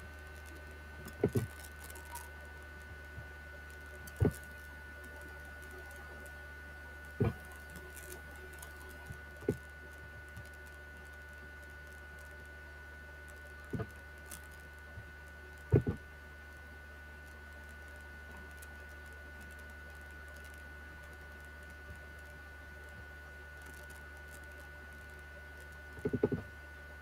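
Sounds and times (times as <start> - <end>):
faint electrical hum: 0.0 - 27.0
thin high whine: 0.0 - 27.0.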